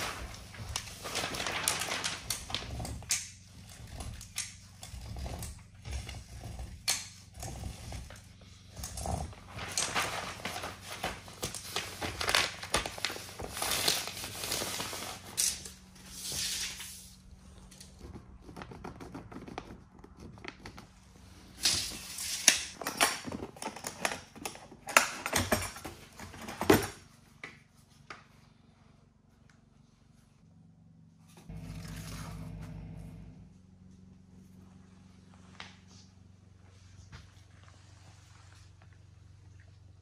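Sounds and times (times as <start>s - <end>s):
plastic sheeting crinkling: 0.0s - 3.0s, 9.4s - 17.2s.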